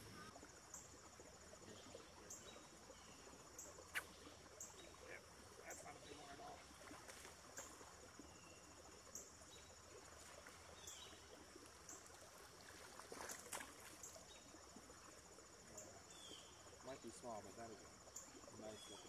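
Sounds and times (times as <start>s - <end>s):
high-pitched insect calls: 1.8s - 6.3s.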